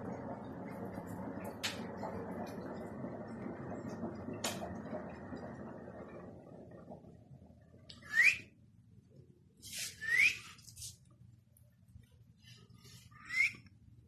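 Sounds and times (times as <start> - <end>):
person whistling rising notes: 8.0 - 8.5, 10.0 - 10.6, 13.2 - 13.6.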